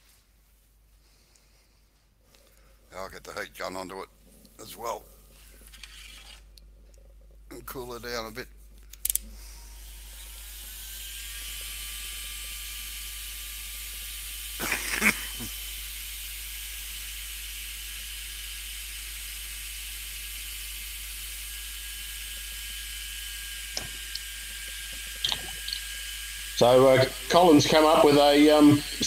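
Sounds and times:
heat gun fan whine: 0:07.6 - 0:29.0.

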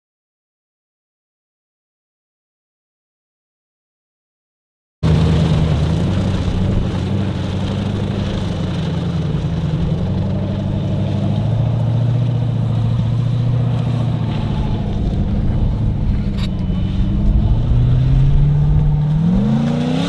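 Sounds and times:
buggy engine running loud: 0:05.0 - 0:20.0.

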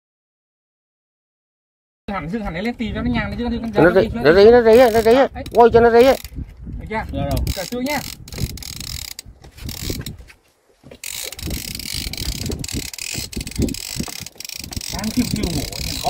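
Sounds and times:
fishing reel clicking and whirring: 0:04.4 - 0:06.4, 0:07.1 - 0:10.2, 0:11.0 - 0:16.0.

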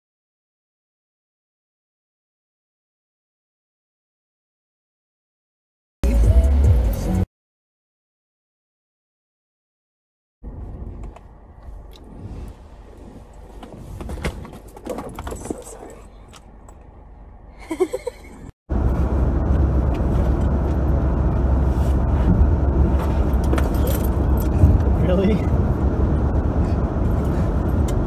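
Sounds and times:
car road noise rumble: 0:10.4 - 0:28.0
backpack rattling and rustling: 0:23.0 - 0:24.7.

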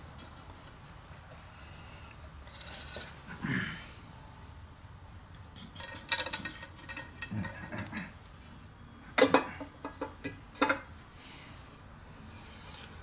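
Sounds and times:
metal clicks and clinks: 0:05.6 - 0:08.0.

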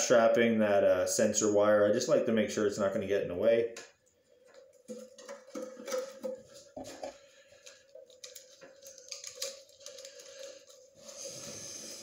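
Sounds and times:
plastic and wire clicks and rustles: 0:04.4 - 0:11.1.

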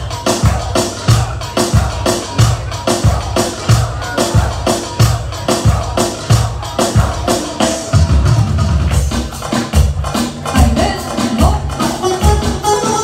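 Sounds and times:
heavy drum beat: 0:00.0 - 0:13.0
clarinet melody: 0:12.0 - 0:13.0.

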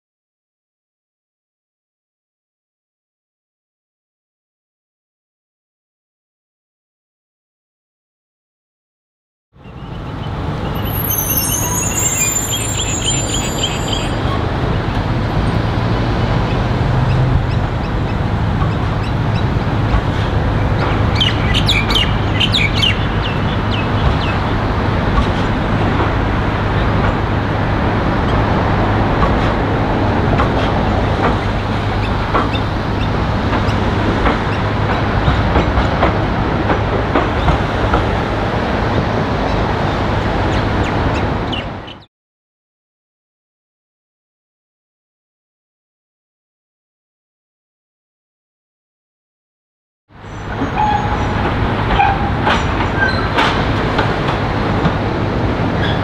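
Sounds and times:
electric tram rolling on track: 0:09.6 - 0:41.9, 0:50.2 - 0:56.0
birds chirping: 0:09.7 - 0:14.4
tram low hum: 0:09.7 - 0:41.8.

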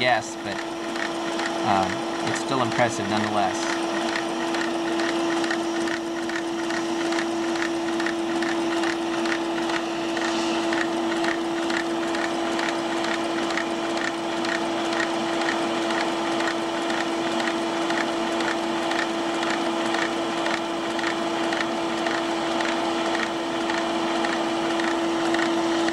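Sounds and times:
air pump humming: 0:00.0 - 0:25.9.

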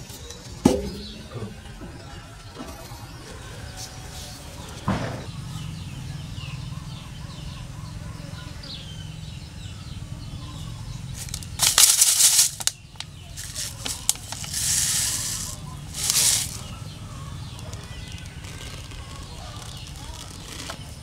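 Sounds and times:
rustling in sand and leaves: 0:10.6 - 0:21.0.

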